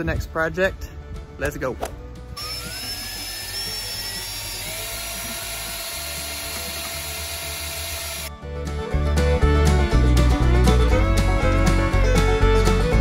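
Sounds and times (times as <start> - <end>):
cordless drill whining: 2.4 - 8.3.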